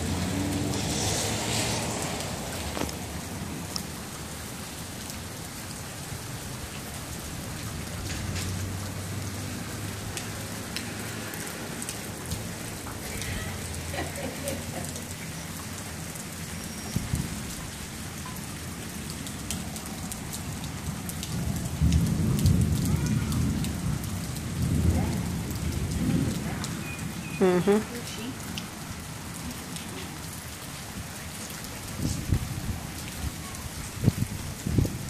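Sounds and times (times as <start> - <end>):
steady rain falling: 0.0 - 35.0
sharp drip ticks: 10.0 - 22.9.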